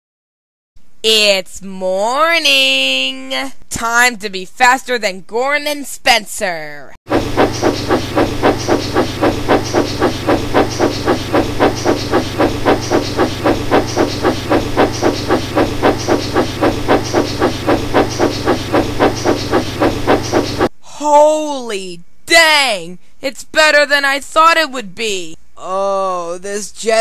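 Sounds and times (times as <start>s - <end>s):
steam train chuffing: 7.1s - 20.7s
steady low hum: 7.1s - 20.8s.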